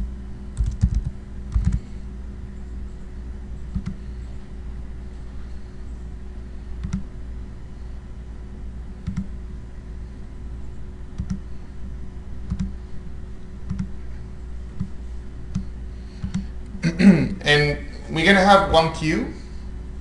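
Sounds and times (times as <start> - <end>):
steady low hum: 0.0 - 20.0
computer mouse clicking: 0.6 - 1.8, 3.7 - 4.0, 6.8 - 7.1, 9.0 - 9.4, 11.2 - 11.5, 12.5 - 12.8, 13.7 - 14.0, 14.8 - 16.5.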